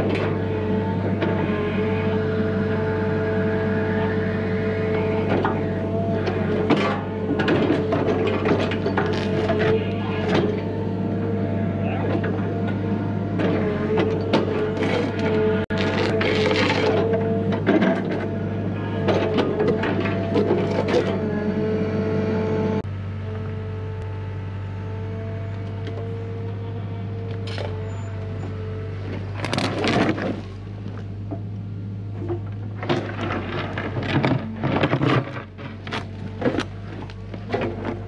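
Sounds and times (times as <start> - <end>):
excavator diesel engine droning: 0.0 - 38.0
bucket scraping against rock: 14.5 - 17.2, 29.2 - 30.6, 32.8 - 38.0.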